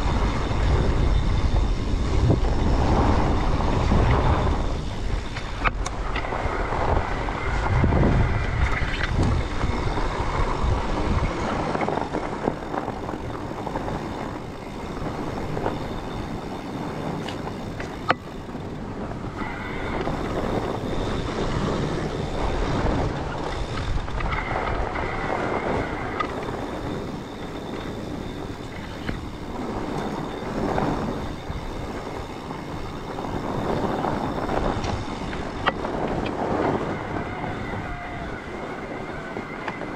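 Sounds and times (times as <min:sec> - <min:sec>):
bike tyres crunching over snow: 0:00.0 - 0:39.9
wind buffeting microphone: 0:00.0 - 0:39.9.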